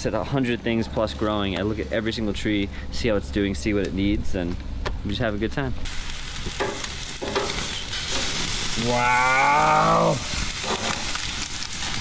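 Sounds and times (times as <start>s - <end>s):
chicken sizzling on grill: 5.8s - 12.0s.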